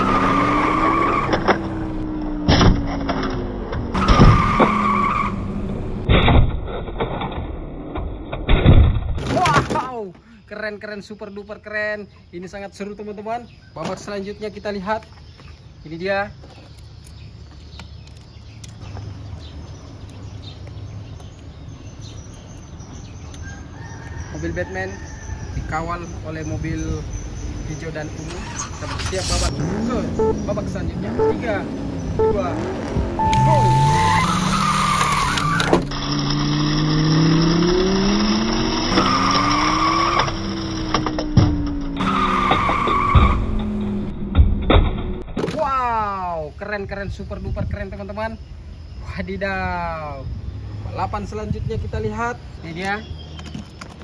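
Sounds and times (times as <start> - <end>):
high tire squeal: 0.0 - 2.0, 3.9 - 5.6, 28.2 - 30.3, 32.0 - 37.2, 38.7 - 40.9, 42.0 - 43.7
race car engine revving: 28.3 - 41.0.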